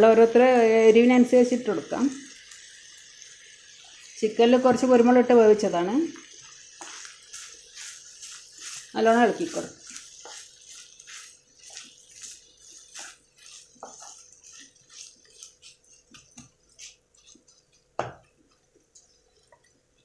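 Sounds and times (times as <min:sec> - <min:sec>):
wooden spatula scraping a wok: 0:06.6 - 0:17.9
knock against pan: 0:18.0 - 0:18.2.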